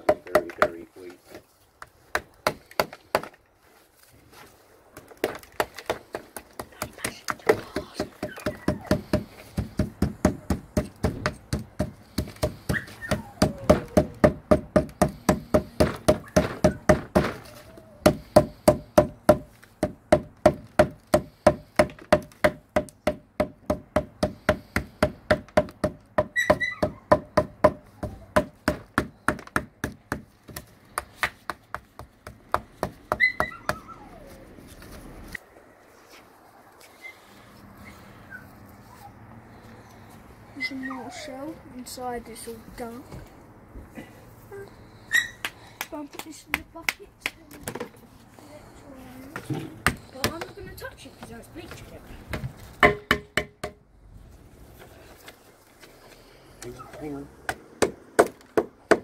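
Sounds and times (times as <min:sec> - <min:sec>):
small hammer striking metal: 0:52.8 - 0:53.8.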